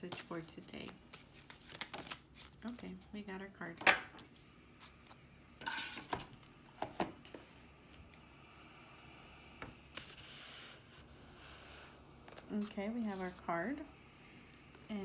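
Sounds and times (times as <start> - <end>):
cards rustling: 0.0 - 3.0.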